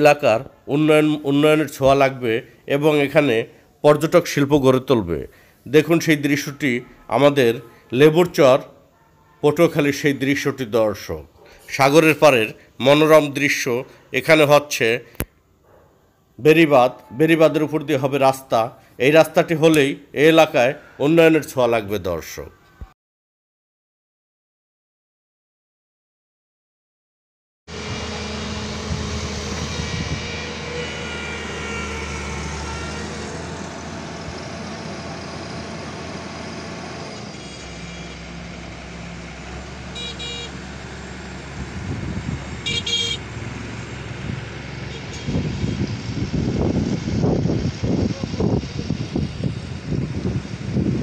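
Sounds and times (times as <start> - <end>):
diesel engine running: 27.7 - 51.0
wind buffeting microphone: 28.8 - 30.4, 41.6 - 42.6, 45.2 - 51.0
horn toots: 29.6 - 33.3, 39.9 - 40.7, 42.6 - 43.3, 44.9 - 45.9.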